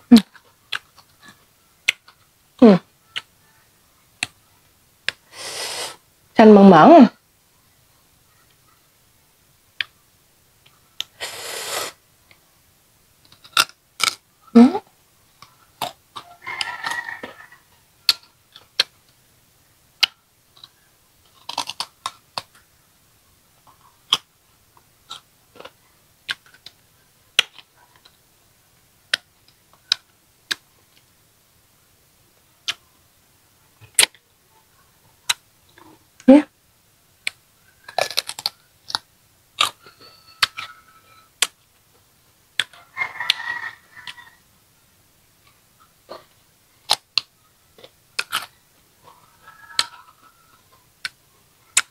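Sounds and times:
crunching and chewing fruit: 0:00.2 - 0:02.3, 0:13.2 - 0:14.3, 0:15.3 - 0:19.2, 0:20.0 - 0:22.7, 0:23.6 - 0:28.2, 0:37.2 - 0:40.8, 0:45.4 - 0:51.9
hissy noises: 0:05.2 - 0:06.1, 0:11.0 - 0:12.0.

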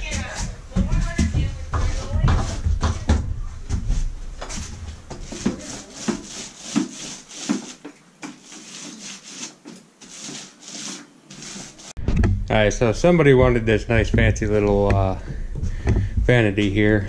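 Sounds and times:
paint roller hissing on wall: 0:04.4 - 0:12.0.

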